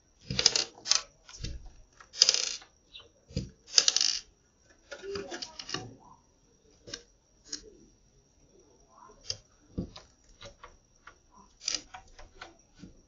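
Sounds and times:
doves pecking seeds on hard ledge: 0:09.0 - 0:13.0.

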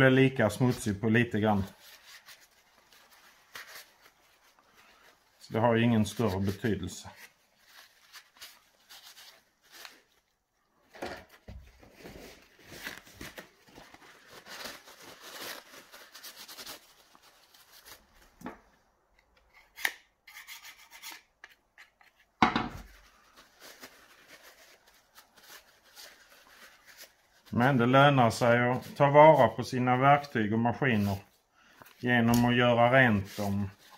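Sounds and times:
paper towel wiping: 0:00.3 - 0:10.3, 0:22.8 - 0:33.9.

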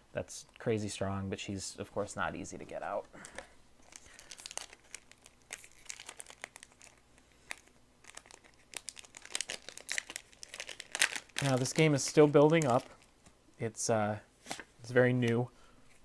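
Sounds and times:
wrapper crinkling and tearing: 0:03.2 - 0:13.1.

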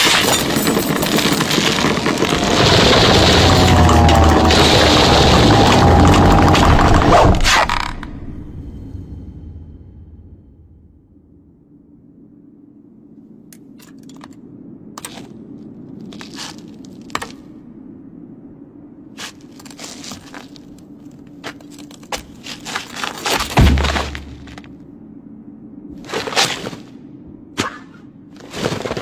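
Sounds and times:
crackling and crunching clicks: 0:00.0 - 0:08.3
low steady hum: 0:00.0 - 0:28.7
heavy thud: 0:23.5 - 0:24.7.

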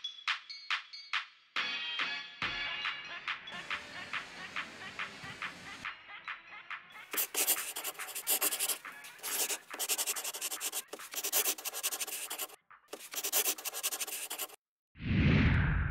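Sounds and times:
marker writing on whiteboard: 0:07.1 - 0:14.6.

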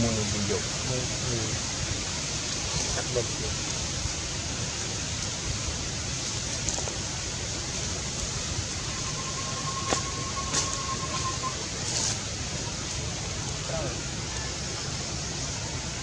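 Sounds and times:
outdoor background hiss: 0:00.0 - 0:16.0
thin steady tone: 0:08.5 - 0:12.1.

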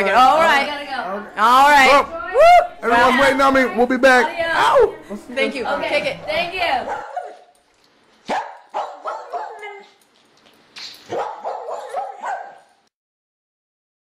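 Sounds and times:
dog barking: 0:06.8 - 0:07.5, 0:08.3 - 0:09.8, 0:11.1 - 0:12.8.

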